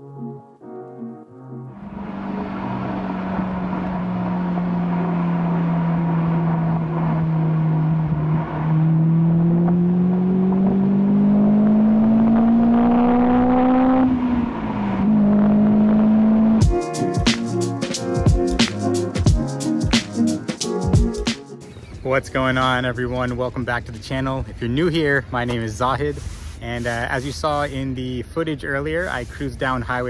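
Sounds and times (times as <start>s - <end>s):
road and wind noise: 1.6s - 16.6s
car engine accelerating: 1.6s - 21.2s.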